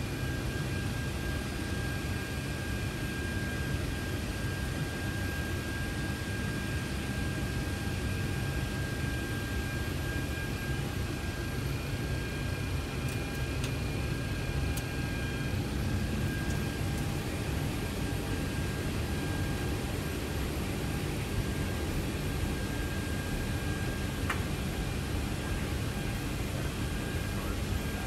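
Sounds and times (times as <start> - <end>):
jet engines rumbling: 11.8 - 28.0.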